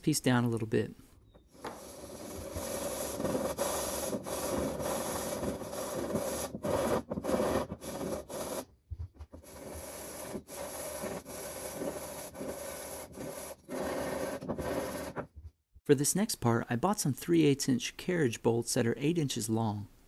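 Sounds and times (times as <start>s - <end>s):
wood block rasping on sandpaper: 1.5s - 8.7s, 9.4s - 15.2s.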